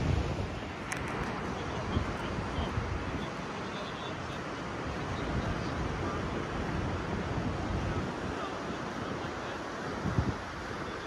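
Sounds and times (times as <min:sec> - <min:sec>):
ocean surf: 0:00.0 - 0:11.0
wind rumbling on microphone: 0:00.0 - 0:11.0.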